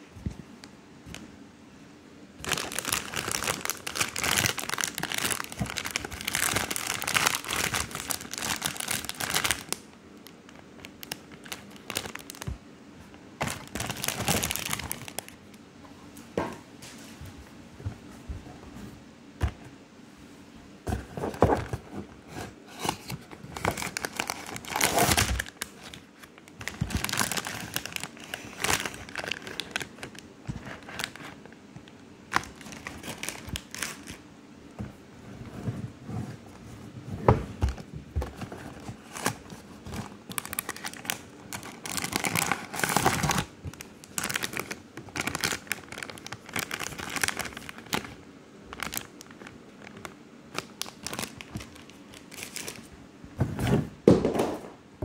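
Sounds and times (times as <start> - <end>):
plastic wrapper crinkling: 2.4 - 12.6, 13.4 - 15.6, 22.8 - 34.2, 37.6 - 52.9
packaging crinkling and rustling: 2.4 - 15.6, 20.9 - 34.2, 34.8 - 54.5.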